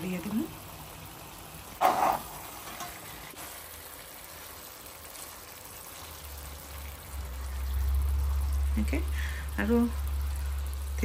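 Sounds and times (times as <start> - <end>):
food sizzling in a frying pan: 0.0 - 11.0
spatula scraping a pan: 1.8 - 3.1.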